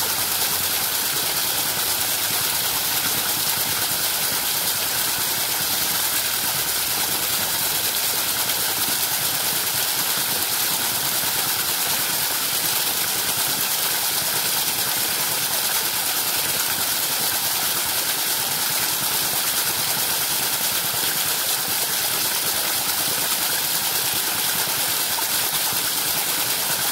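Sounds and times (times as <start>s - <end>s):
water jet splashing into plastic cups: 0.0s - 26.9s.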